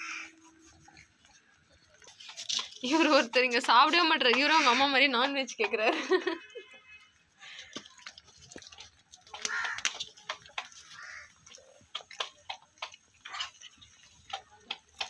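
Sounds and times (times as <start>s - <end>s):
puppies chewing and smacking: 0.3s - 4.6s, 7.4s - 15.0s.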